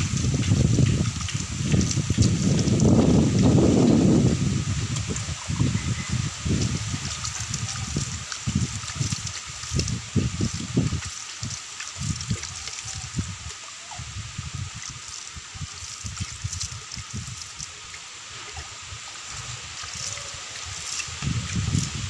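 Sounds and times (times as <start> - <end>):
dull low thumps: 0.0 - 7.1
water splashing onto soil: 0.0 - 22.0.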